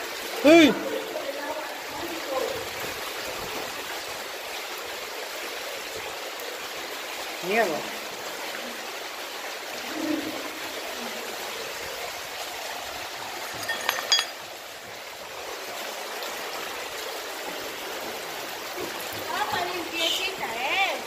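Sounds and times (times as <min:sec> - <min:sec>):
stream running over stones: 0:00.0 - 0:21.0
metallic clinks of iron plate: 0:13.5 - 0:14.4.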